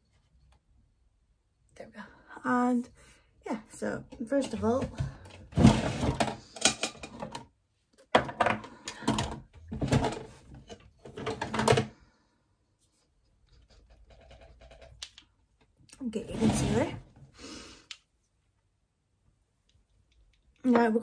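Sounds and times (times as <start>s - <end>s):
makeup containers rustling and clattering: 4.1s - 12.0s, 13.6s - 17.0s.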